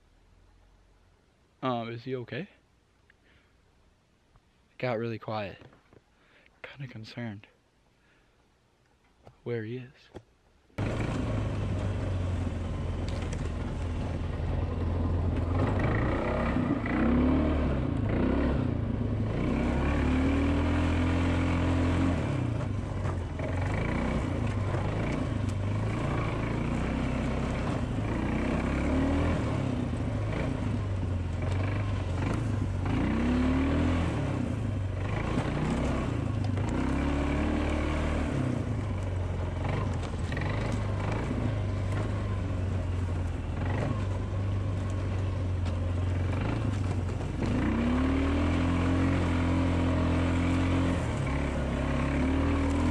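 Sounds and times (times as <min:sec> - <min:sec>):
quad engine revving: 0:10.8 - 0:52.9.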